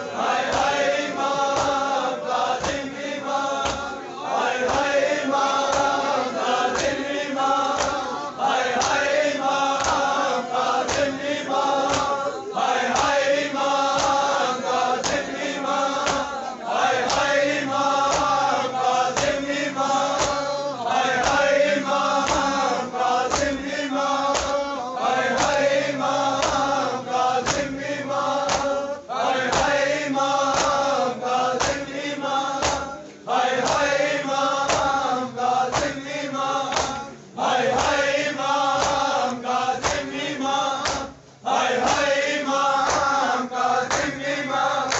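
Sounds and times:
men chanting a lament: 0.0 - 44.9.

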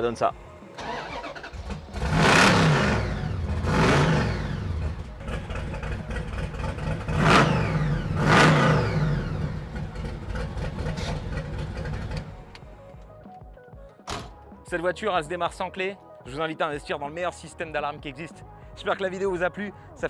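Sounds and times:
car engine revving and idling: 0.8 - 12.6.

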